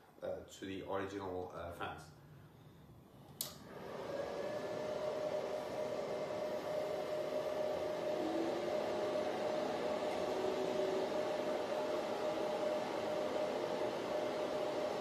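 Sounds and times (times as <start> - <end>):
steady hum: 2.1 - 15.0
fan whoosh: 3.4 - 15.0.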